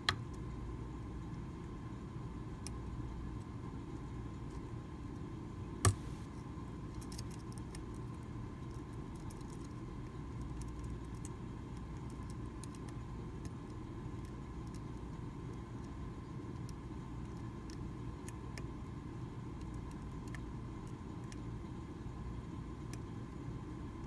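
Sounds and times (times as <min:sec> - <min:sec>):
low background hum: 0:00.0 - 0:24.0.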